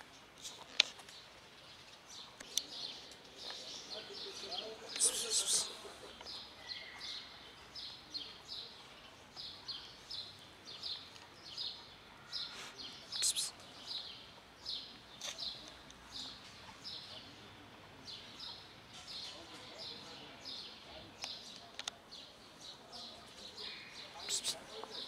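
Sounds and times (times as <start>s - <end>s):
small bird chirping: 4.9s - 8.7s, 12.4s - 17.1s.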